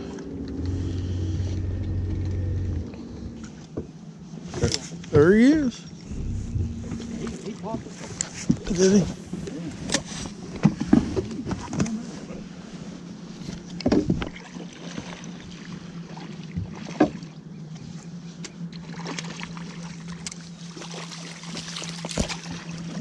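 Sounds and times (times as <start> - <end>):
boat motor humming: 0.0 - 4.5, 5.9 - 10.5
knocks and clatters on boat: 13.5 - 15.2, 21.4 - 23.0.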